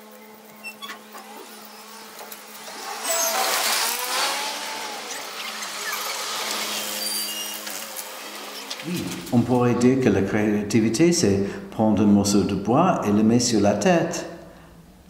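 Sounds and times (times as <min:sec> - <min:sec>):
car driving past: 0:01.0 - 0:09.5.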